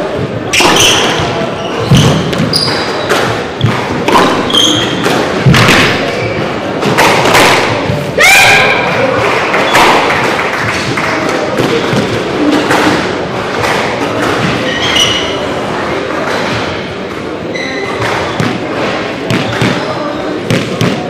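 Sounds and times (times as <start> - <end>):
shoes squeaking on wooden floor: 0.5 - 7.1, 14.2 - 15.5, 16.3 - 20.4
squash ball thudding off walls: 0.6 - 6.2.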